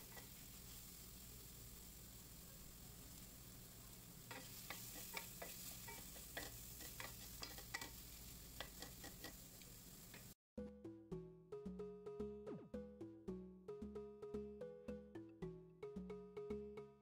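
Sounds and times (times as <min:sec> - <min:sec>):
oil sizzling: 0:00.0 - 0:10.4
spatula scraping metal pan: 0:04.3 - 0:09.4.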